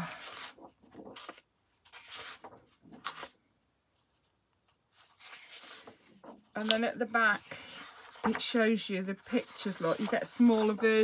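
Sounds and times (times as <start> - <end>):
paper sheets rustling: 0.0 - 3.4, 4.0 - 11.0.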